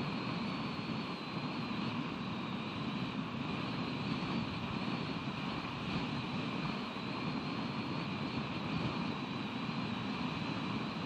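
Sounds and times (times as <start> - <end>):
faint high whine: 0.0 - 11.0.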